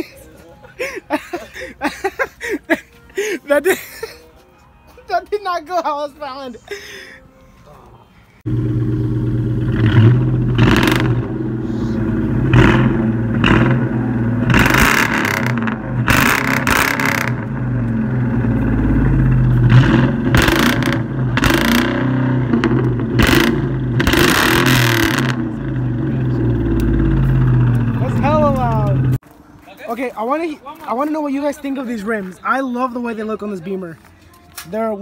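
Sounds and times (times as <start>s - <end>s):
car engine idling: 8.5s - 29.2s
engine revving barks: 8.5s - 29.2s.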